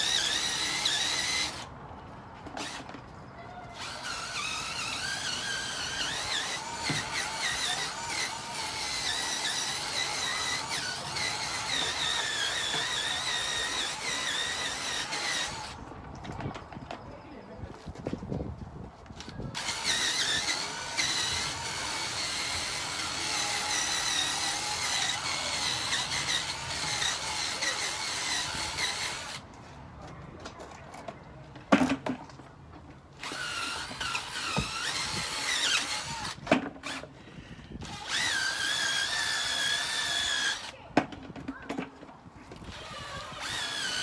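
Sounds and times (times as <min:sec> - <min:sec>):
cordless drill motor whining: 0:00.0 - 0:01.7, 0:02.5 - 0:03.0, 0:03.7 - 0:15.8, 0:19.2 - 0:29.4, 0:33.2 - 0:40.8, 0:42.5 - 0:44.0.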